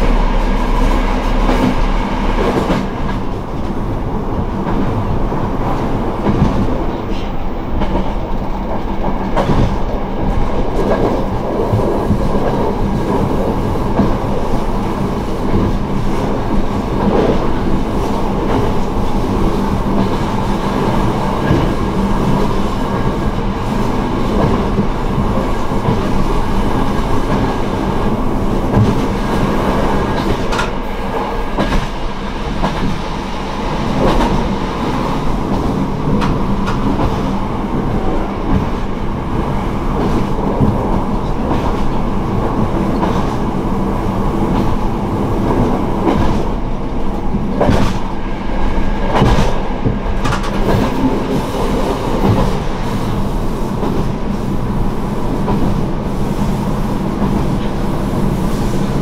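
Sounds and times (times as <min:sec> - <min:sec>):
diesel engine humming: 0:00.0 - 0:04.2
train wheels rumbling: 0:00.0 - 0:59.0.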